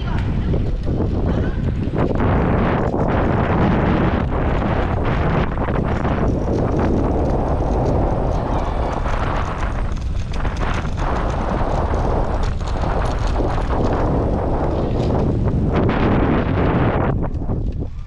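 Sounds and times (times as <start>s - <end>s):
crackles: 0.0s - 18.0s
wind buffeting microphone: 0.0s - 18.0s.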